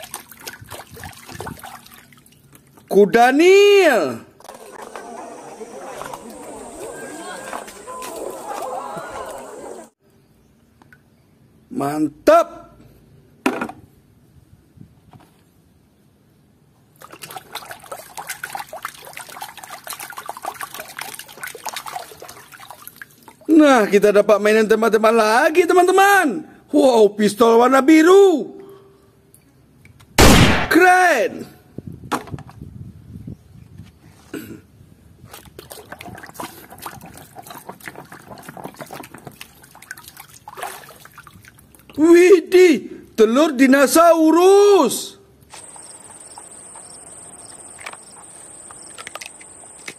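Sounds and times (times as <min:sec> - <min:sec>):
hand splashing in muddy water: 0:00.0 - 0:02.8, 0:17.0 - 0:23.5, 0:35.3 - 0:41.9.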